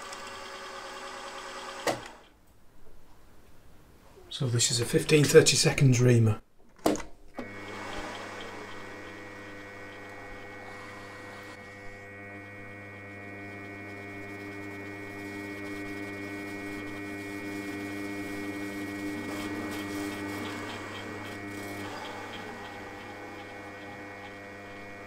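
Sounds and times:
milling machine spindle hum: 0:07.4 - 0:25.0.

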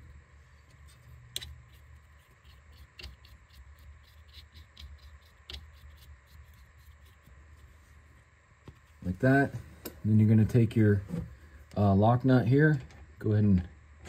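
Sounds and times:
low steady hum: 0:00.0 - 0:14.0
faint scratching with clicks: 0:00.5 - 0:10.0.

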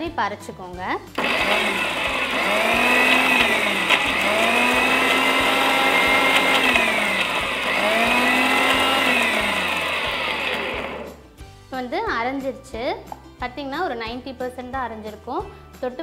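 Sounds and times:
electric mixer grinder running: 0:01.2 - 0:11.3.

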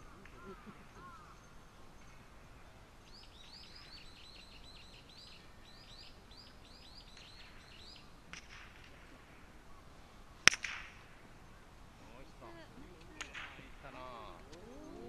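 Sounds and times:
small bird chirping: 0:13.9 - 0:15.0.

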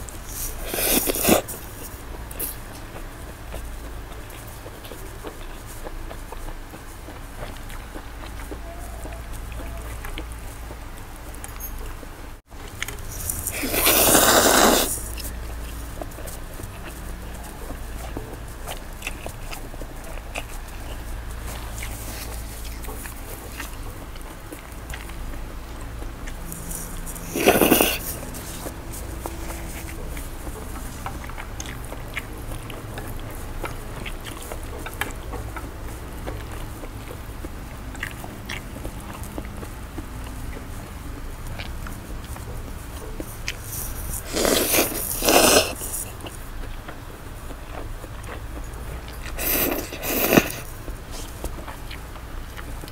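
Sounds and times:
person chewing food: 0:00.0 - 0:52.9
steady low hum: 0:00.0 - 0:52.9
person slurping noodles: 0:00.2 - 0:01.8, 0:13.1 - 0:15.2, 0:27.1 - 0:28.7, 0:43.9 - 0:46.1, 0:49.3 - 0:50.7.

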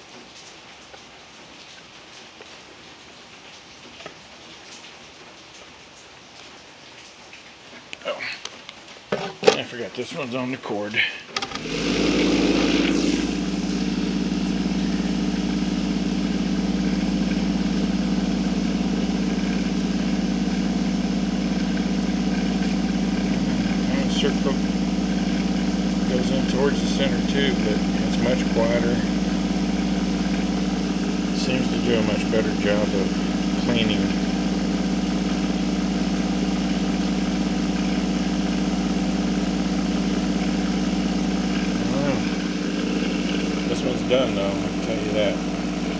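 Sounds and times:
vibratory tumbler humming: 0:11.6 - 0:45.9.

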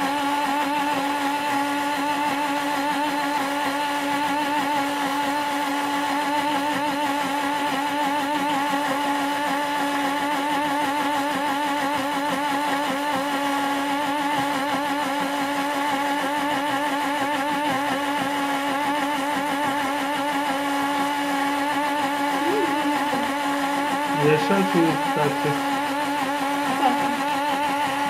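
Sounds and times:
blender motor whining: 0:00.0 - 0:28.0.

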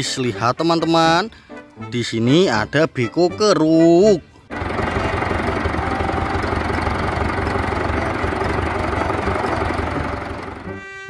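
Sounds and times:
excavator diesel engine rumbling: 0:04.5 - 0:11.0.

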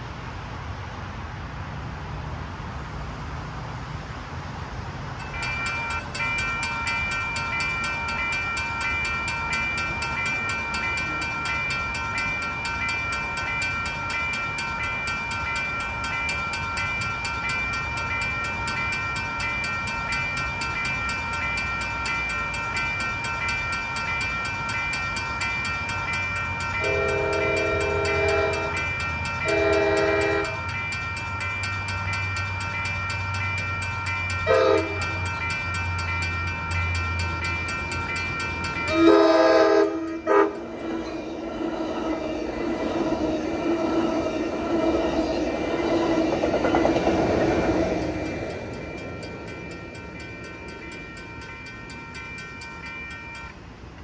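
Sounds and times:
railroad crossing bells ringing: 0:05.0 - 0:54.0
train horn blasts: 0:26.8 - 0:28.8, 0:29.4 - 0:30.7, 0:34.5 - 0:35.2, 0:38.9 - 0:41.0.

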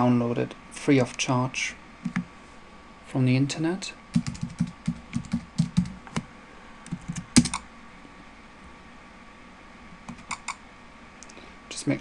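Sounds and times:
computer keyboard typing: 0:04.1 - 0:06.2, 0:06.9 - 0:07.6, 0:10.1 - 0:10.6.

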